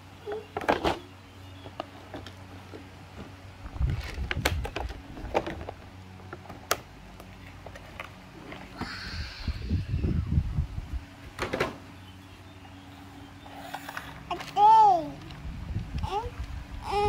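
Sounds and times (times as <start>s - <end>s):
crinkling rustle of packaging: 3.7s - 5.9s.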